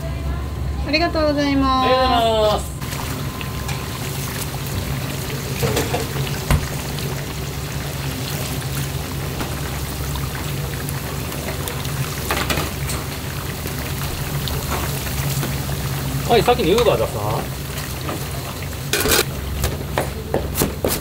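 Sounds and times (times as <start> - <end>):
water running: 1.9 - 19.3.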